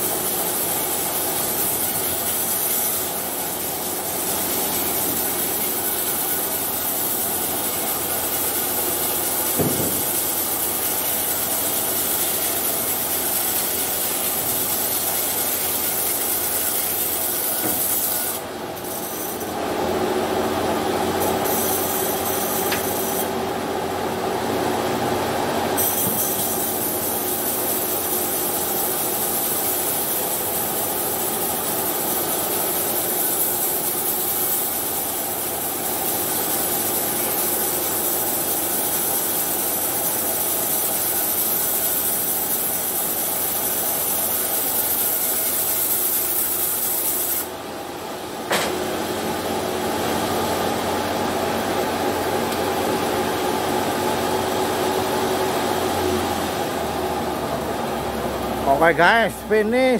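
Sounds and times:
bandsaw mill cutting wood: 0.0 - 59.9
sharp knock: 9.6 - 10.1.

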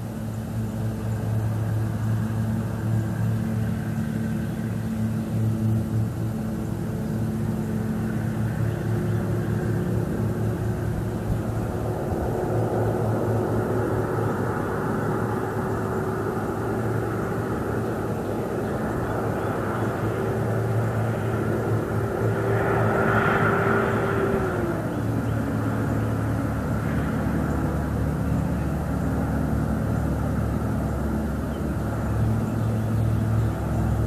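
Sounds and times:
propeller aircraft engine droning: 0.0 - 34.0.

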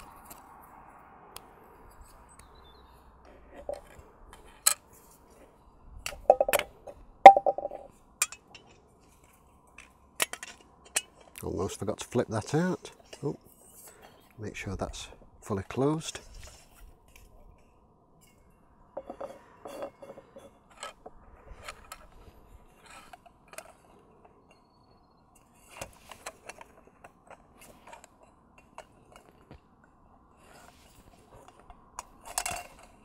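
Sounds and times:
metal pot parts clinking: 6.1 - 8.7.

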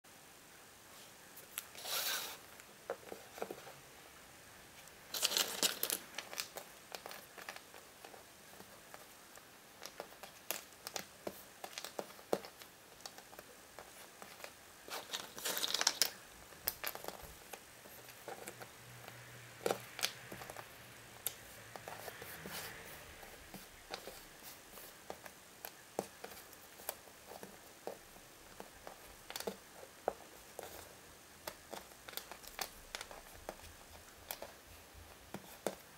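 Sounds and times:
foil wrapper crinkling: 5.1 - 7.6, 14.4 - 17.6
jigsaw pieces clicking on wooden floor: 5.1 - 22.2, 25.0 - 34.6.

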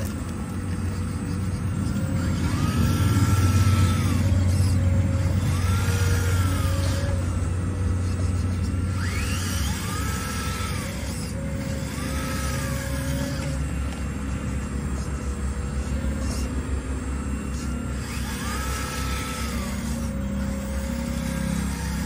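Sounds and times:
hydraulic pump hum: 0.0 - 22.0
hydraulic whine: 0.0 - 22.0.

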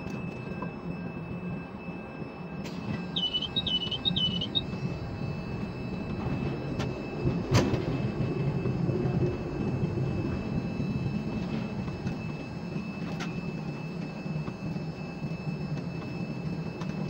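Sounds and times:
crane machinery humming: 0.0 - 17.0
short warbling beeps: 2.7 - 4.8.

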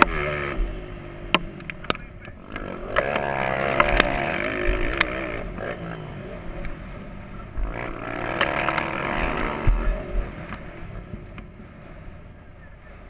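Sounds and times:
dirt bike engine revving: 0.0 - 13.0
low thuds on the mic: 8.4 - 11.5.

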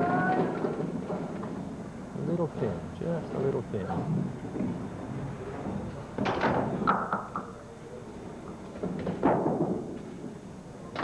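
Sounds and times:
bowling pins clattering: 5.6 - 7.6, 8.4 - 11.0.

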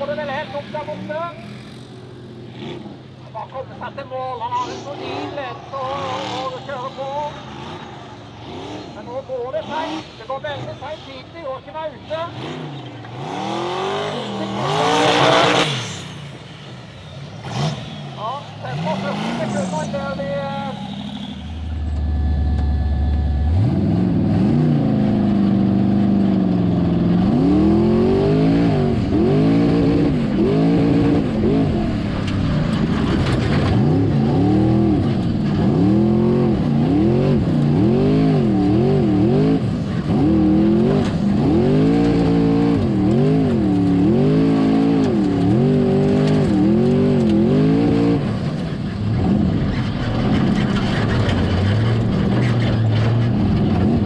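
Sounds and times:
engine revving hard: 4.7 - 10.1, 12.1 - 16.2, 17.4 - 48.4.

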